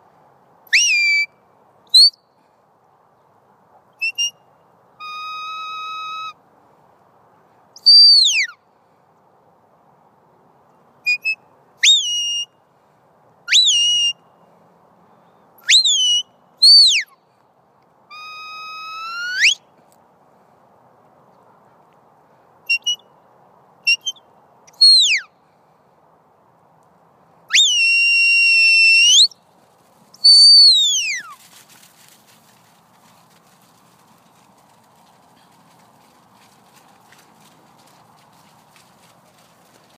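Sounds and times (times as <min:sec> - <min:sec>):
high herding whistle notes: 0:18.1 - 0:19.6, 0:22.7 - 0:23.1, 0:24.8 - 0:25.3, 0:27.5 - 0:29.4, 0:30.2 - 0:31.4.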